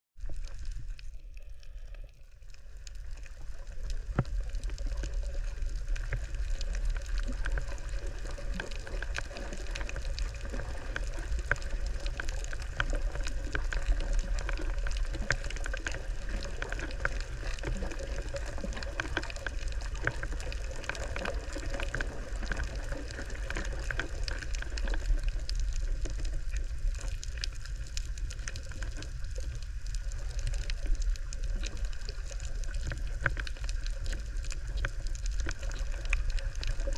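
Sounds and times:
tiny crackling clicks: 0.2s - 36.9s
underwater rumble of moving water: 0.2s - 36.9s.

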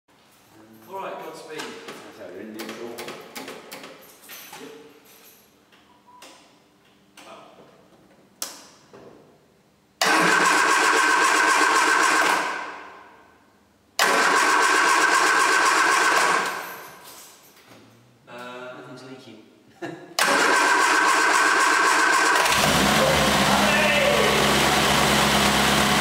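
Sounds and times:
car engine cranking on starter: 10.0s - 12.6s, 14.0s - 16.6s, 20.2s - 26.0s.

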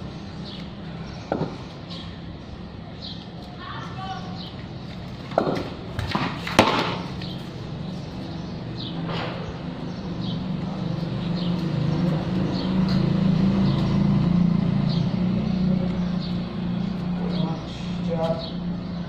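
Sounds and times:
low engine hum: 7.0s - 19.0s.

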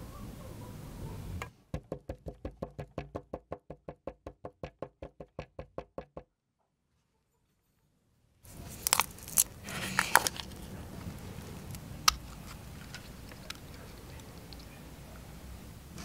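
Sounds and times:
mould knocking on wooden table: 1.7s - 6.2s.

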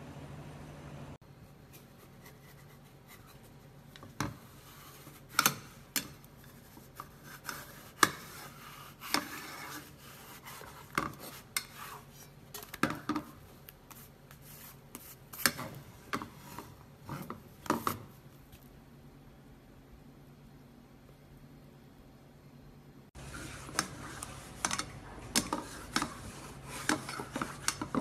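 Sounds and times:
spatula scraping frying pan: 4.4s - 12.4s, 14.4s - 18.0s, 23.2s - 28.0s.

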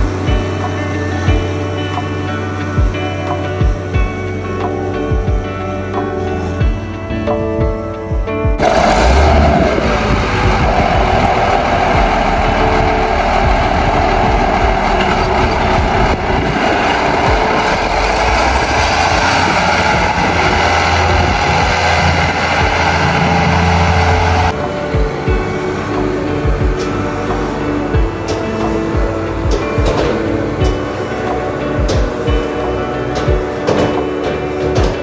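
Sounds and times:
tractor diesel engine running: 8.6s - 35.0s.

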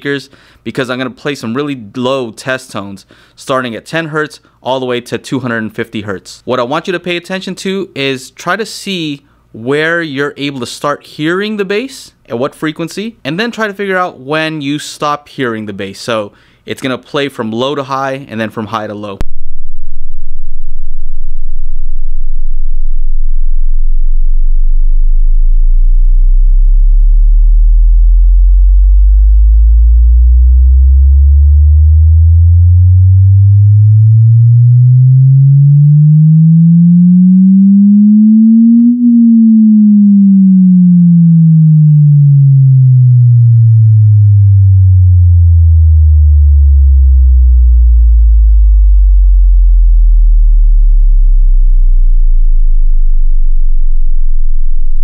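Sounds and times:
sine wave test tone sweep: 19.2s - 55.0s.

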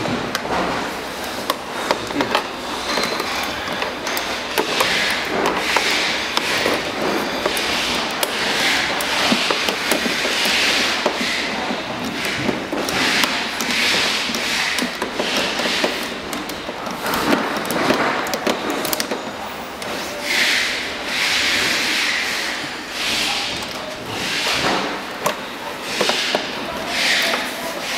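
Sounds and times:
tools scraping plastic: 0.0s - 27.9s.

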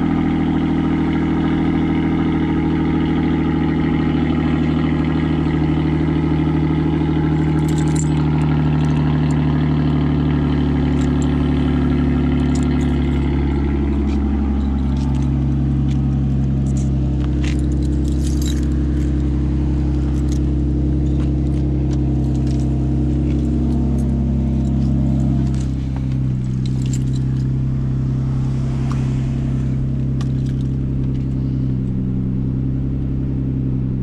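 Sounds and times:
car engine idling: 0.0s - 34.0s
keys jangling: 6.5s - 9.5s, 10.8s - 27.6s, 30.2s - 31.4s.

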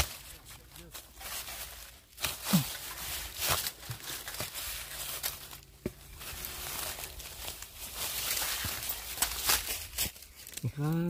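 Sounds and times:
dry leaves crunching: 0.0s - 11.0s.

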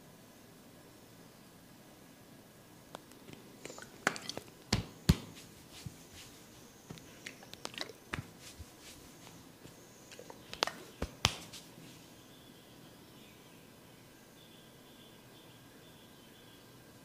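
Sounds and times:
hands slapping: 4.1s - 11.7s
soft tapping and rubbing: 4.7s - 12.0s.

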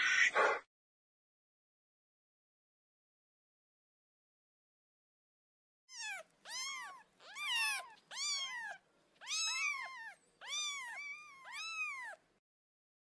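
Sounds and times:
cat meowing: 5.9s - 12.2s.

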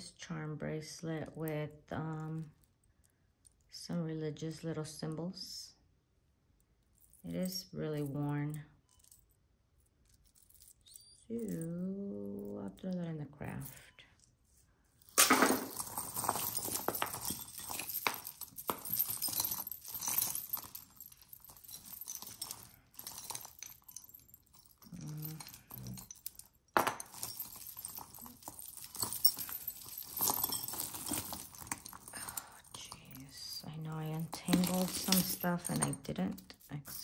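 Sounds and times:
jewelry clattering: 6.6s - 37.0s
metal jewelry clinking: 6.6s - 37.0s.

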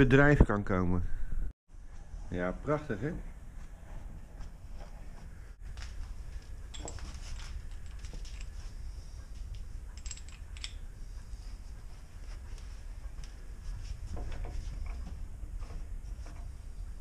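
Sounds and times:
metallic tool clicks and clinks: 9.5s - 10.8s.

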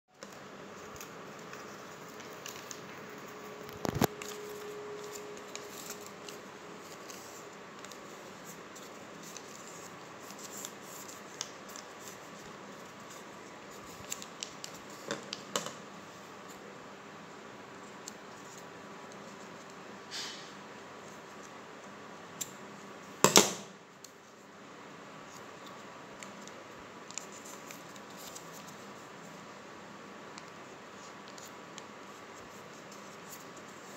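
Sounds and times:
paper rustling and crackling: 0.2s - 15.6s, 25.3s - 29.3s
steady hiss: 19.5s - 21.2s.

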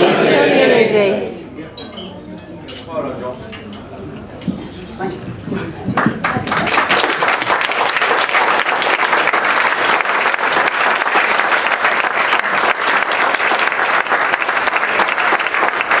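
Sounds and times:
crowd applauding: 5.1s - 16.0s.

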